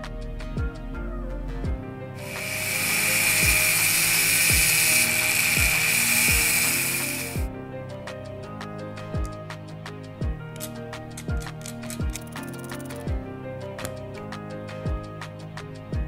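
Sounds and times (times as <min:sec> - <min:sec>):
rotary tool cutting steel: 0:02.2 - 0:07.5.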